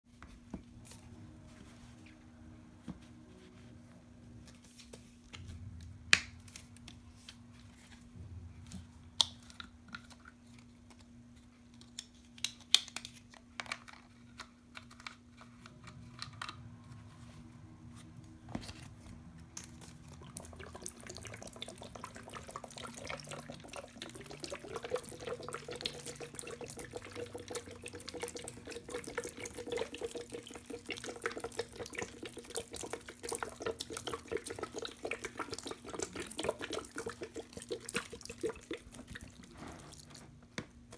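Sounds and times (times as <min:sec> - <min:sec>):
liquid pouring and splashing: 0:19.6 - 0:40.3.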